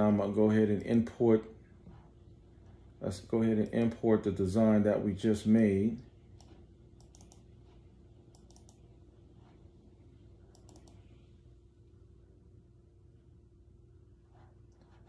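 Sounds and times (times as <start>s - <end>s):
faint steady hum: 0.0s - 15.0s
computer mouse clicks: 6.4s - 7.5s, 8.3s - 8.8s, 10.5s - 11.1s.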